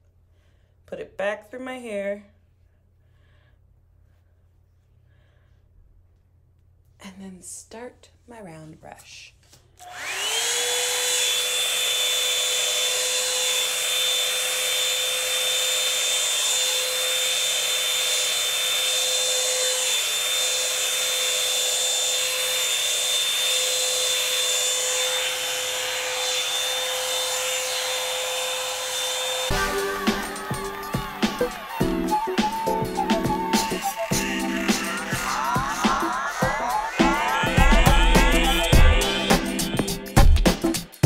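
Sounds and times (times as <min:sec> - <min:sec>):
hair dryer whining: 0:09.8 - 0:40.7.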